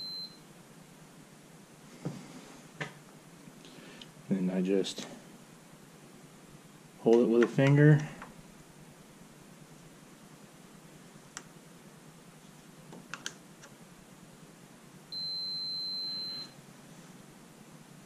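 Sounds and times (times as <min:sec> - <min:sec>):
continuity tester high beep: 0:00.0 - 0:00.4, 0:15.1 - 0:16.6.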